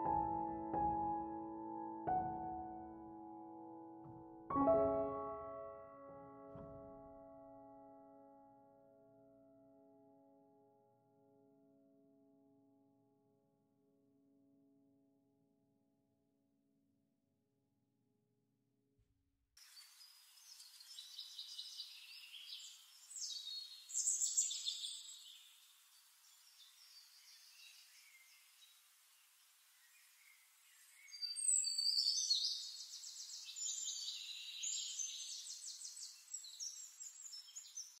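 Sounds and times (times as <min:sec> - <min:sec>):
birds chirping and trilling: 0:19.7 - 0:28.8, 0:29.7 - 0:38.0.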